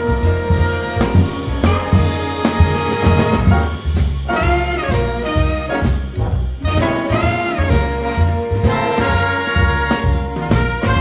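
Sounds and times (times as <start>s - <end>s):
jazz music with brass: 0.0s - 11.0s.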